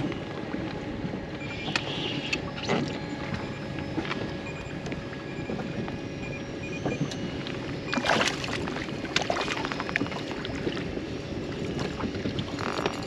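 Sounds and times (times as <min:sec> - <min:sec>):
water slapping against boat hull: 0:06.7 - 0:13.0
fish splash: 0:08.0 - 0:10.8.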